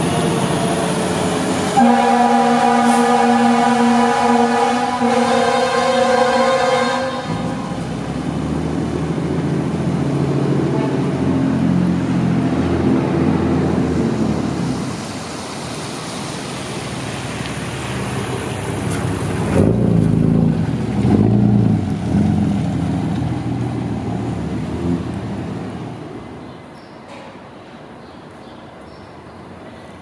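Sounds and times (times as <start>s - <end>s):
heavy engine low rumble: 0.0s - 27.4s
tyre hiss on wet pavement: 14.1s - 19.5s
car engines at low speed: 16.9s - 25.9s.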